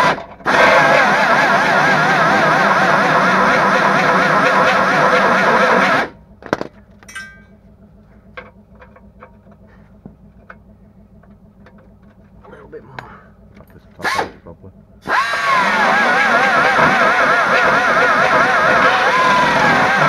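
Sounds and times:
metal knock and clink: 0:06.4 - 0:07.5
power tool grinding metal: 0:15.0 - 0:20.0.

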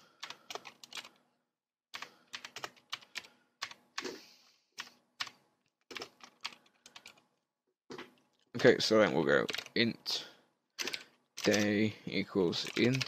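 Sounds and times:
keyboard typing: 0:00.0 - 0:01.2, 0:02.0 - 0:04.2, 0:04.8 - 0:07.3, 0:09.4 - 0:09.8, 0:10.8 - 0:11.8, 0:12.5 - 0:13.0.

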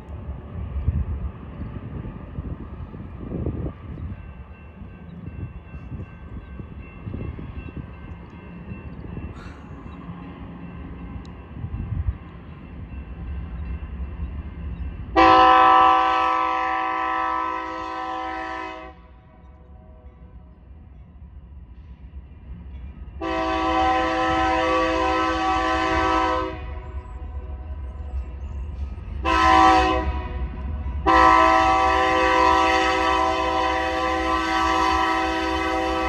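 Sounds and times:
train rumble: 0:00.0 - 0:36.0
locomotive air horn blast: 0:15.2 - 0:19.1, 0:23.2 - 0:26.9, 0:29.2 - 0:36.0.

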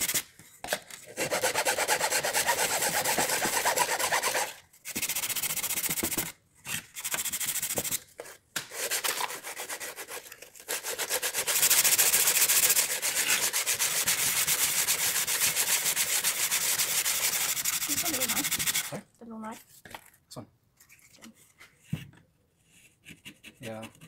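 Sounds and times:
sandpaper rubbing on wood: 0:00.0 - 0:00.2, 0:01.2 - 0:06.3, 0:07.0 - 0:08.0, 0:08.7 - 0:19.0.

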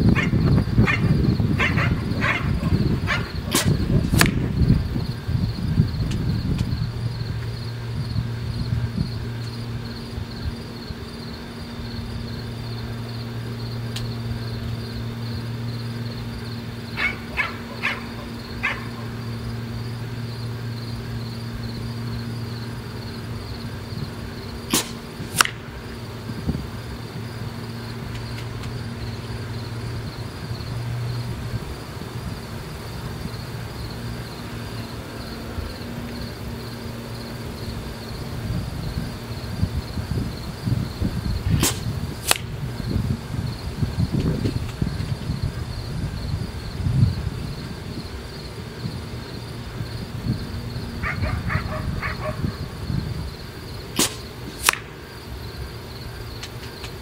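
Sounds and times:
insect chirring: 0:00.0 - 0:57.0
dog barking: 0:00.1 - 0:03.4, 0:17.0 - 0:19.1, 0:51.0 - 0:52.6
sharp cracks: 0:03.1 - 0:04.6, 0:24.7 - 0:25.8, 0:41.5 - 0:42.6, 0:53.9 - 0:55.0.

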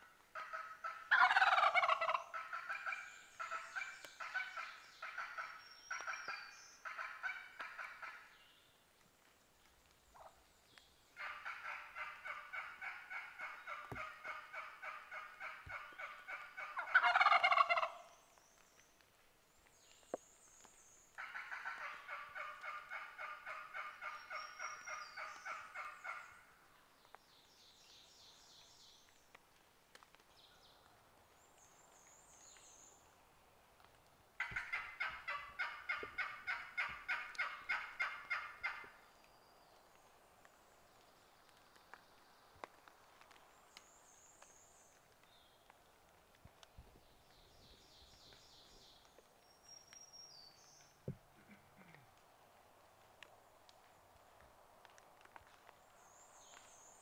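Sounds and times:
turkey gobble: 0:00.3 - 0:08.3, 0:11.2 - 0:18.1, 0:21.2 - 0:26.3, 0:34.4 - 0:38.9
turkey hen yelping: 0:00.4 - 0:08.2, 0:11.2 - 0:18.0, 0:34.4 - 0:38.9.

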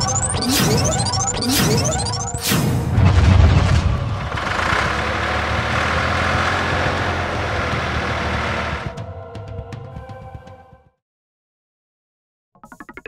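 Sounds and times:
tractor engine low rumble: 0:02.9 - 0:08.9.

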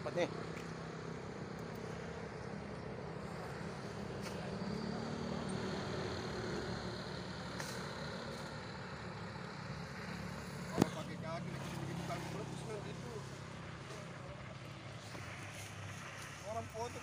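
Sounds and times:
engine droning: 0:00.0 - 0:17.0.

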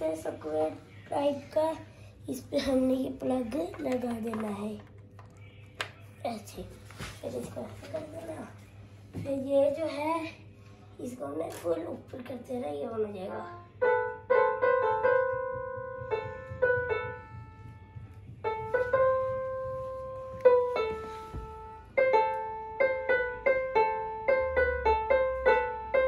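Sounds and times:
electronic keyboard notes: 0:13.3 - 0:26.0.

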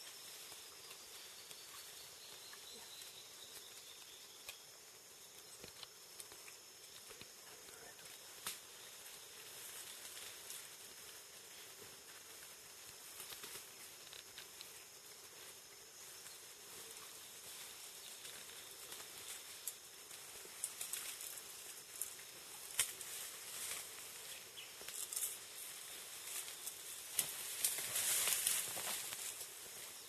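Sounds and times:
faint forest hiss: 0:00.0 - 0:30.0
leaves and vines rustling: 0:00.0 - 0:30.0
twigs crackling: 0:12.5 - 0:14.8, 0:17.9 - 0:29.8.

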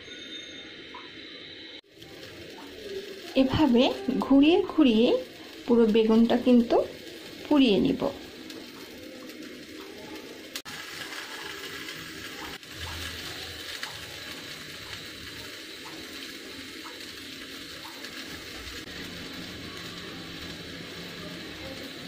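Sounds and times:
gas burner flame hissing: 0:00.0 - 0:22.0.

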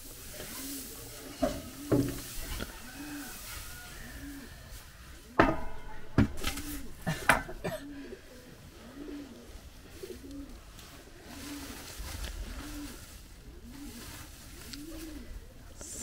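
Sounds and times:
pigeon cooing: 0:00.3 - 0:16.0
sharp knocks: 0:05.4 - 0:07.6.

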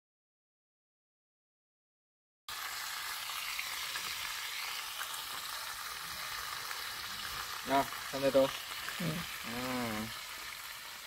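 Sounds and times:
food sizzling in a pan: 0:02.5 - 0:11.0.

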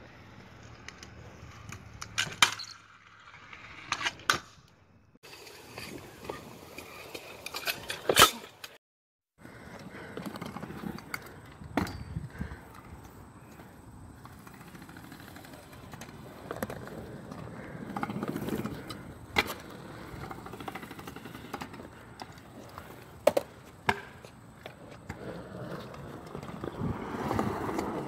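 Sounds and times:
scooter wheels rolling on concrete: 0:00.0 - 0:08.8, 0:09.4 - 0:28.0
scooter clacking on ground: 0:09.6 - 0:28.0.

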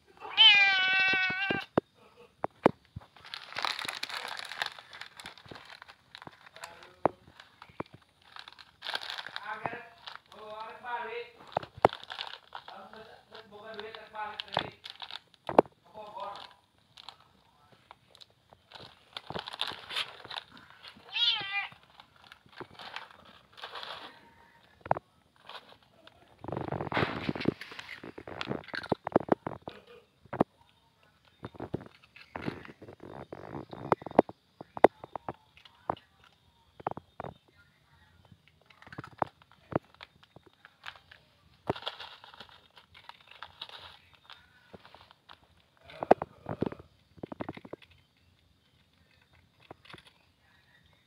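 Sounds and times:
cat meowing: 0:00.2 - 0:01.7, 0:21.1 - 0:21.8
plastic packet crinkling: 0:02.6 - 0:30.0, 0:31.2 - 0:37.3, 0:38.6 - 0:50.2.

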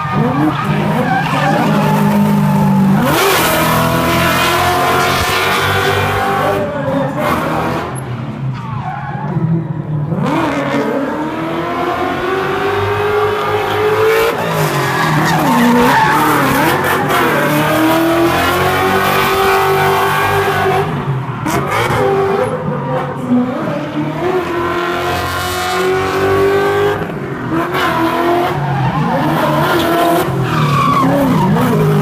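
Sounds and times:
car engine revving: 0:00.0 - 0:32.0
tyres screeching: 0:13.7 - 0:20.6.

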